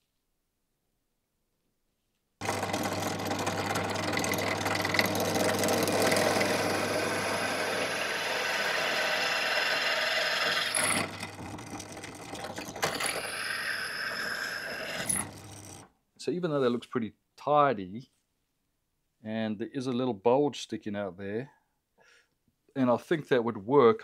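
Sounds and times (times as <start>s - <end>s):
drill press motor running: 2.4s - 15.9s.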